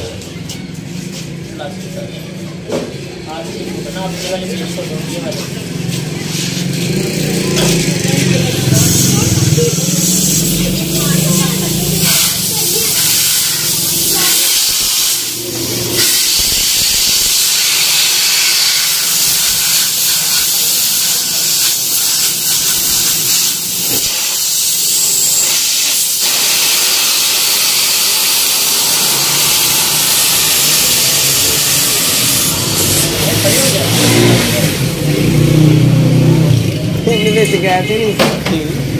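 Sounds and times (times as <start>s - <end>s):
loud steady hiss: 8.6s - 34.3s.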